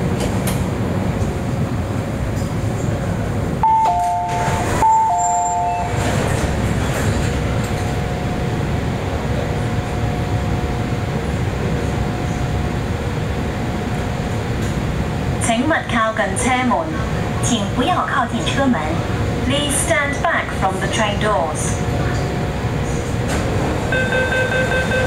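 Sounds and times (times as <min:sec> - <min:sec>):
train car hum: 0:00.0 - 0:25.0
two-note door chime: 0:03.6 - 0:05.9.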